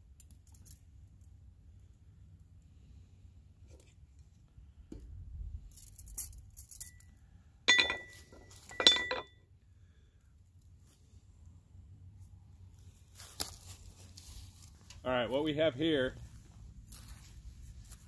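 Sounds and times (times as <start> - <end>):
metallic clinks ringing: 6.0 - 9.4
handling rustle: 12.8 - 15.1.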